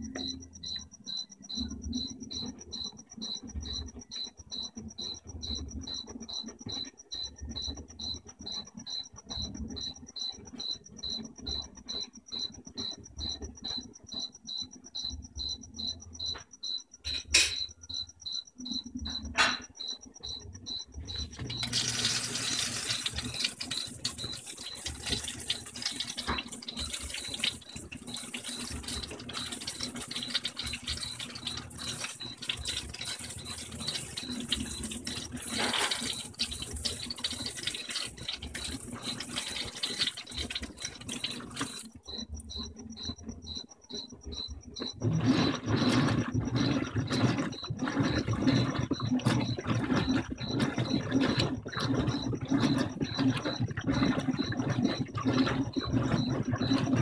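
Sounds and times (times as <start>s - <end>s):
washer churning: 0.0s - 16.8s, 17.4s - 57.0s
water spraying into washer: 21.1s - 42.1s, 44.8s - 57.0s.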